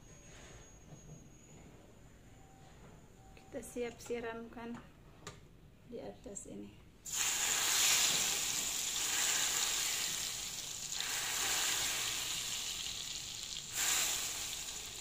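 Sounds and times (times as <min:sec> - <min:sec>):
hot oil sizzling: 0:07.0 - 0:15.0.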